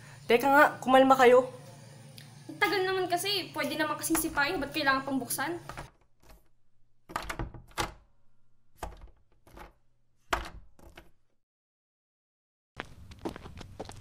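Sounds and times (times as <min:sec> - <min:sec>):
door locks clunking and clicking: 0:05.7 - 0:08.1, 0:08.8 - 0:11.2.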